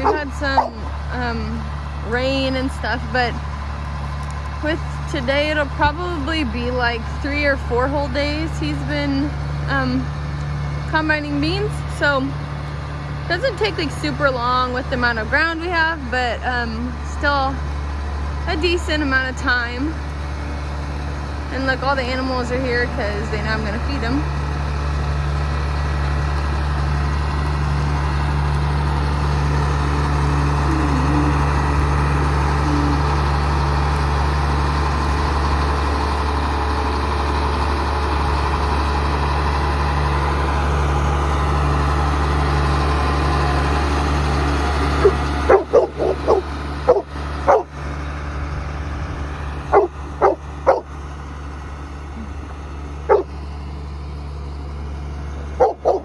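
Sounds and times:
dog barking: 0:00.0 - 0:00.7, 0:45.0 - 0:47.7, 0:49.7 - 0:50.8, 0:53.1 - 0:53.3, 0:55.6 - 0:56.0
diesel engine running: 0:00.0 - 0:56.0.

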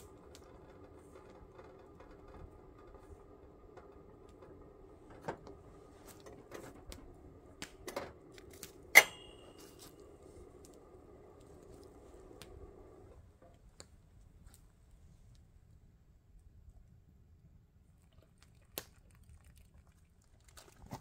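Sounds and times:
water boiling in a pot: 0:00.0 - 0:13.2
metal clinks: 0:08.9 - 0:09.9.

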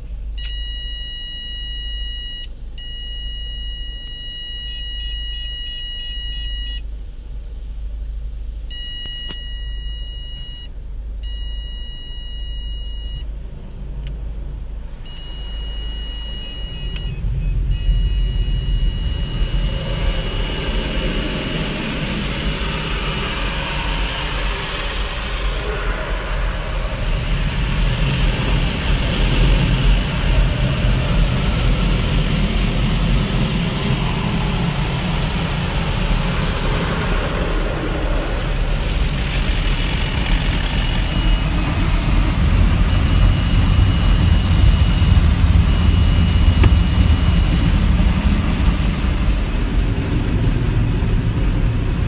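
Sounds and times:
car wash low rumble: 0:00.0 - 0:52.0
high steady tone: 0:15.1 - 0:50.2.

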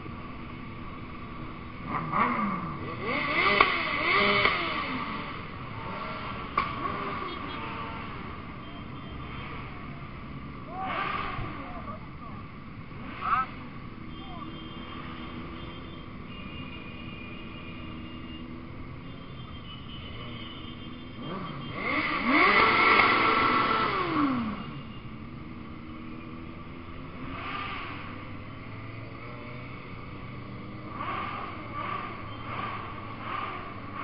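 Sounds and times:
motorcycle engines running: 0:00.0 - 0:34.0
sport bike engine revving: 0:01.5 - 0:08.4, 0:10.8 - 0:11.8, 0:20.3 - 0:34.0.

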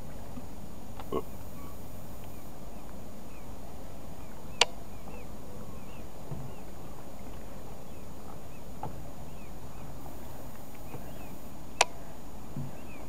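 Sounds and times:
low outdoor rumble: 0:00.0 - 0:13.0
faint high chirps: 0:10.0 - 0:11.5.

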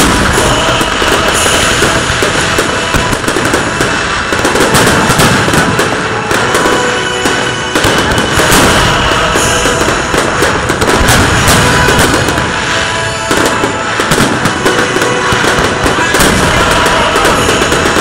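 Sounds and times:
fireworks bangs and crackling: 0:00.0 - 0:18.0.

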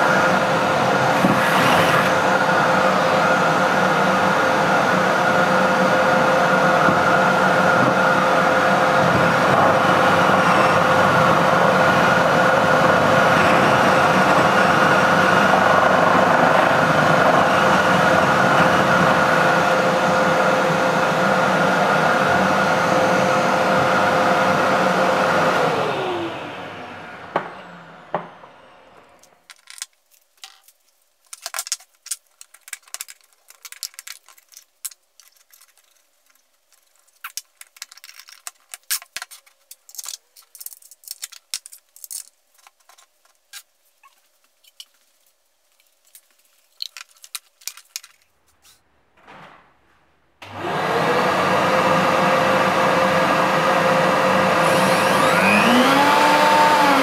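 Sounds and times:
high-speed electric motor whine: 0:00.0 - 0:29.4, 0:50.4 - 0:57.0.

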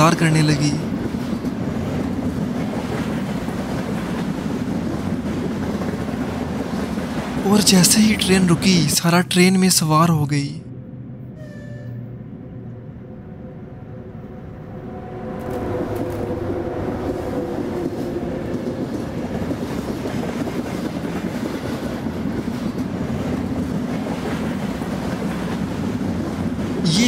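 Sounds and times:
train wheels rumbling on track: 0:00.0 - 0:09.2, 0:14.9 - 0:27.0.

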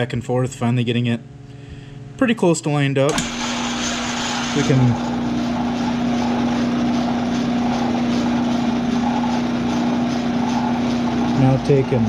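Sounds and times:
metal lathe motor hum: 0:03.1 - 0:12.0.

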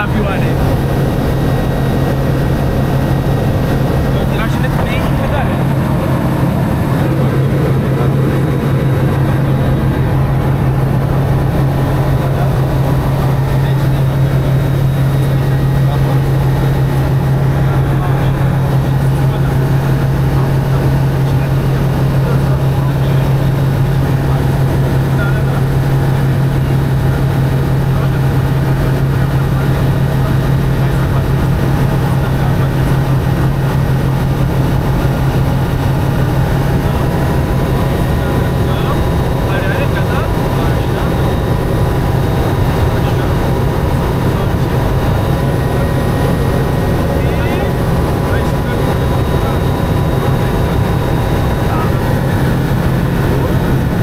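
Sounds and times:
airflow noise: 0:00.0 - 0:24.1
propeller engine humming: 0:00.0 - 0:54.0.

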